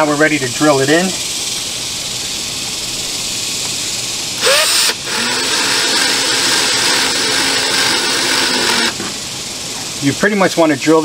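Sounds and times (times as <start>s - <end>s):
cordless drill driving a screw: 4.4s - 9.0s.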